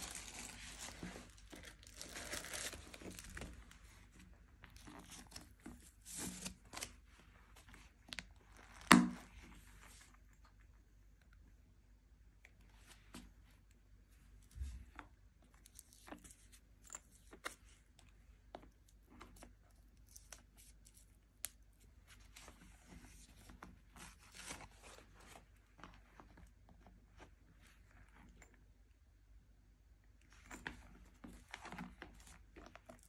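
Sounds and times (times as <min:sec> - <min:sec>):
bag handling rustles and clicks: 0:00.0 - 0:07.0, 0:30.3 - 0:33.0.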